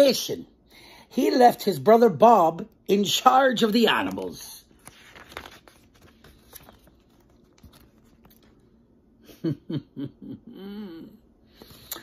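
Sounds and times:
book pages turning: 3.6 - 8.8.

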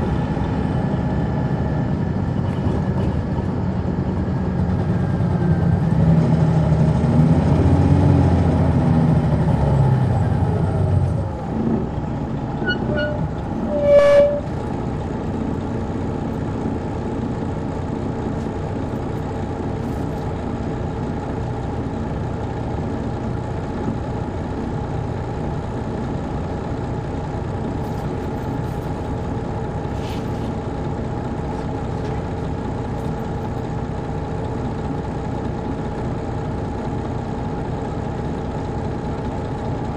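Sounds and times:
diesel engine droning: 0.0 - 39.9
diesel engine idling: 0.0 - 39.9
brief sharp tone: 12.6 - 14.5.

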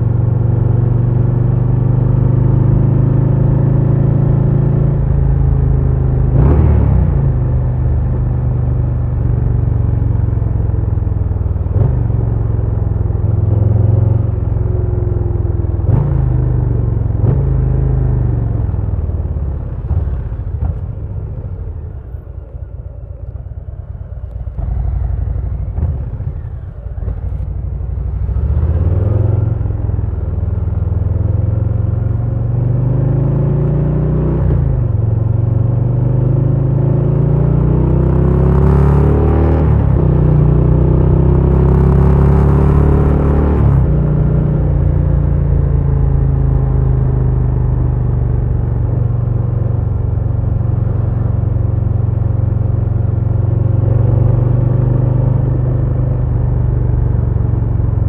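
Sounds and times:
motorcycle engine running: 2.6 - 32.6.

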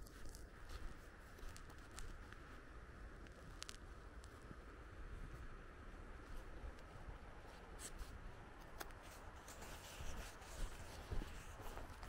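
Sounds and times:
light ticks: 0.0 - 2.5, 3.2 - 4.5
clothing rustle: 7.4 - 12.0.

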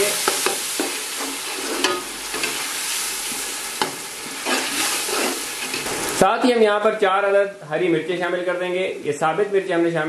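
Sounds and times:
food sizzling in oil: 0.0 - 6.6
spoon stirring and scraping: 0.2 - 6.2.

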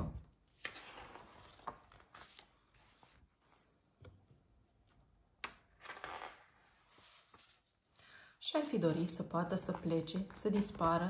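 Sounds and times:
book pages rustling: 0.5 - 4.1, 5.5 - 7.8, 8.7 - 11.0.

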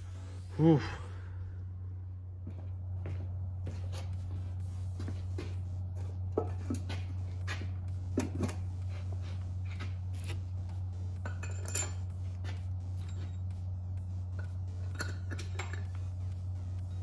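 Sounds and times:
steady low hum: 0.0 - 17.0
metal bolts clinking: 11.2 - 12.1, 14.8 - 16.0.

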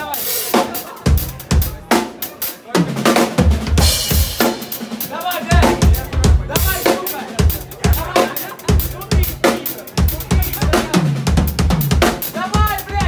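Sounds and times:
rock band playing: 0.0 - 13.0
kick and snare drum beat: 2.8 - 13.0.

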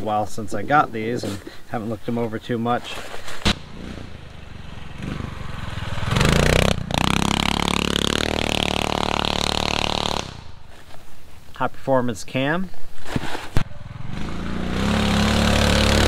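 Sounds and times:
dirt bike engine riding by: 3.3 - 10.9, 13.6 - 16.0.

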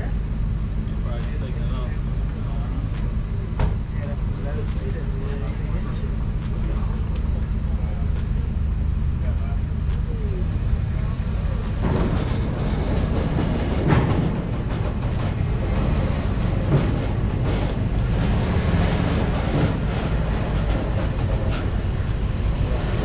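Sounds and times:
van engine rumble: 0.0 - 23.0
tyres knocking on ramps: 11.5 - 23.0.

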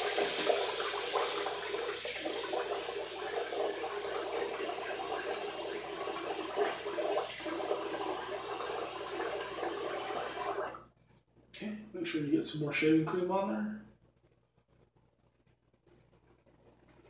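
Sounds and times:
sink tap running: 0.0 - 10.8.

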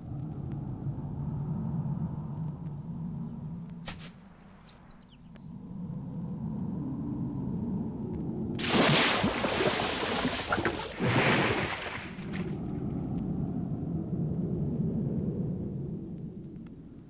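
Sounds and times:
loud water splash: 8.6 - 12.5.

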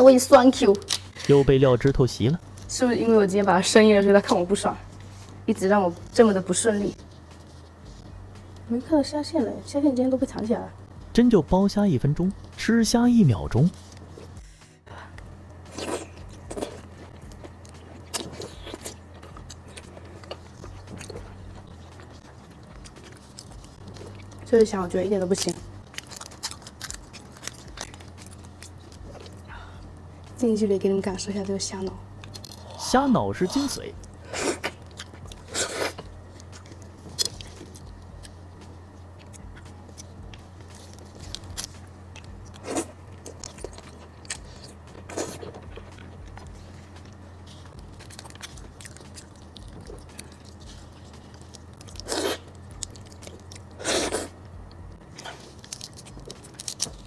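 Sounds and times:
chewing: 15.2 - 24.6, 25.2 - 30.0, 34.0 - 57.0.

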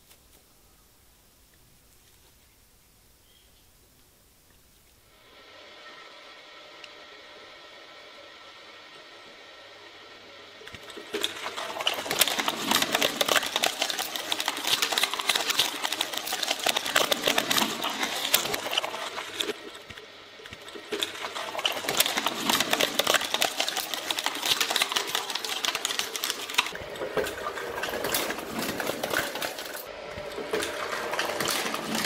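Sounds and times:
shredder cutters crackling clatter: 10.6 - 32.0.

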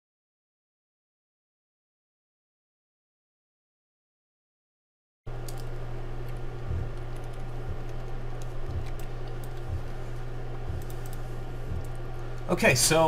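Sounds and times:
low electrical hum: 5.3 - 13.0
computer mouse and keyboard clicks: 5.4 - 12.5
soft low thumps: 5.8 - 12.5.

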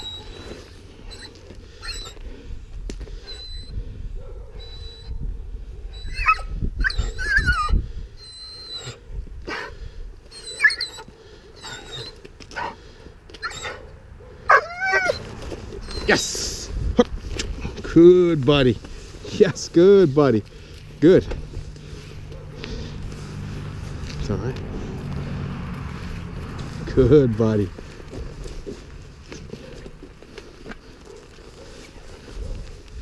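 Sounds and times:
puppy whining and yipping: 0.0 - 2.2, 3.2 - 3.8, 4.4 - 12.8, 13.4 - 13.9, 14.5 - 16.4.

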